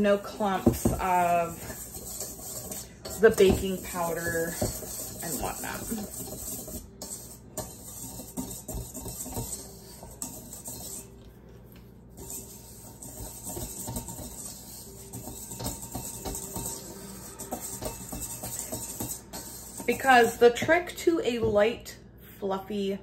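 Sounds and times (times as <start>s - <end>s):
whisk scraping and tapping in bowl: 0.0s - 21.0s.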